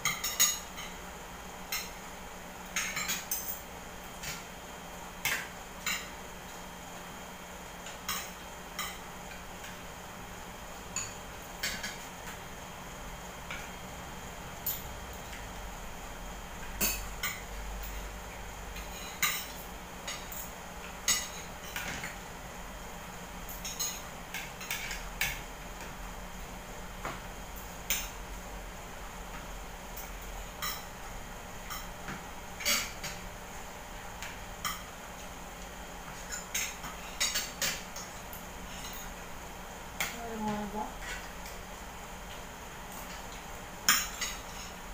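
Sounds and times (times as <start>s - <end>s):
cutlery clinking against plates: 0.0s - 1.0s, 2.8s - 3.6s, 7.8s - 9.8s, 11.0s - 12.0s, 18.8s - 22.2s, 23.5s - 25.4s, 30.0s - 30.9s, 31.6s - 33.2s, 34.2s - 34.9s, 36.1s - 39.2s, 42.9s - 44.8s
faint steady hum: 0.0s - 44.9s.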